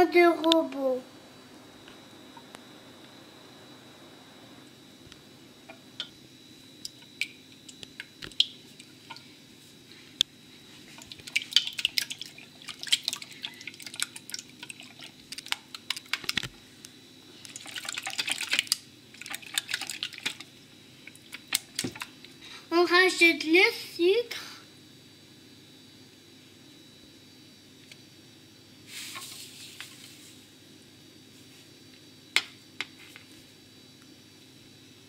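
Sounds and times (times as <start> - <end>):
eggs whisked in a bowl: 10.7 - 22.4.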